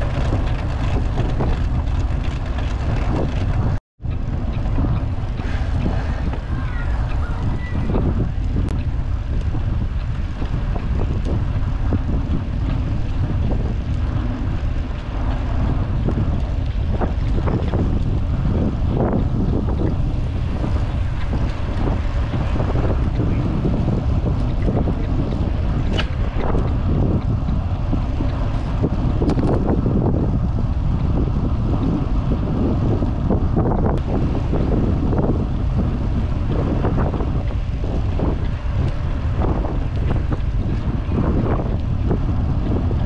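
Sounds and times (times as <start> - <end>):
low rumble of bicycle ride: 0.0 - 43.0
wind buffeting camera: 0.0 - 43.0
bike clicks and knocks: 24.3 - 27.6.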